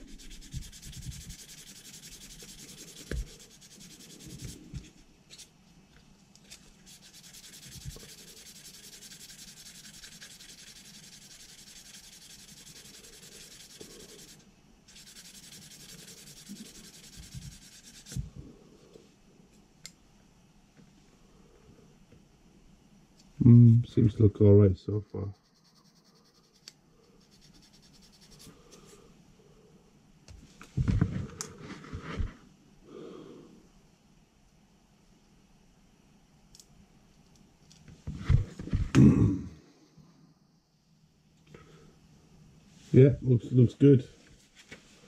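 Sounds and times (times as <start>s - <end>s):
sanding stick rasping on plastic: 0.0s - 4.7s, 6.8s - 18.2s, 25.2s - 28.5s.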